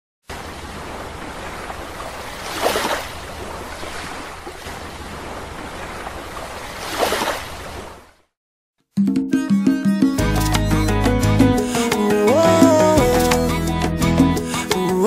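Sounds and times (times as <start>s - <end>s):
ocean waves breaking: 0.2s - 8.3s.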